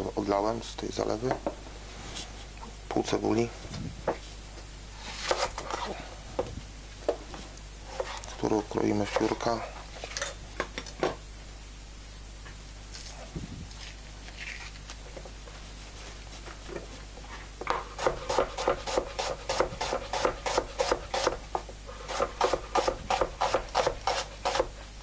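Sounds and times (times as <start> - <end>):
knife slicing onion on board: 5.2 - 5.9, 17.7 - 21.4, 22.1 - 24.8.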